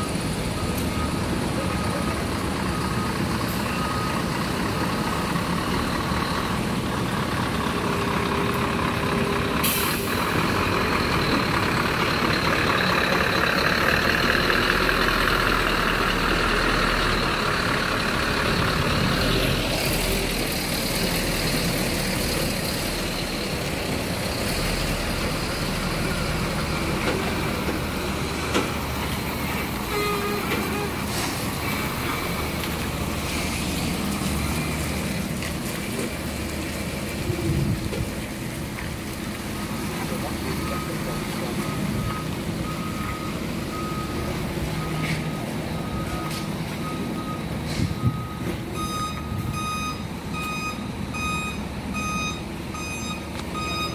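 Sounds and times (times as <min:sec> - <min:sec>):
truck diesel engine passing: 0:00.0 - 0:53.9
air brakes hissing: 0:09.6 - 0:10.4, 0:29.9 - 0:32.1.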